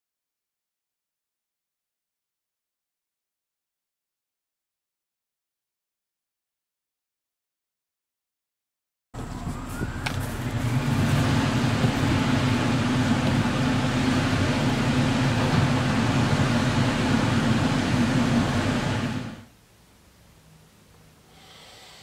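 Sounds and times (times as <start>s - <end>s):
mechanical running noise: 9.2s - 19.5s.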